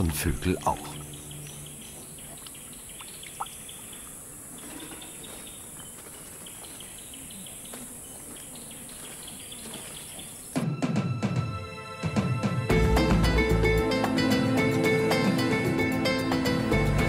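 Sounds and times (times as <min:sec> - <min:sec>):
bird chirps: 0:00.5 - 0:10.6.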